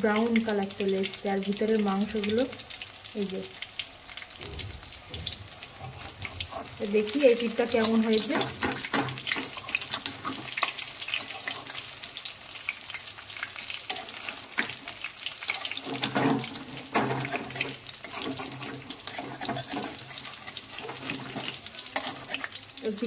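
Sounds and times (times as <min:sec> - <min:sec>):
chicken frying in hot oil: 0:00.0 - 0:23.0.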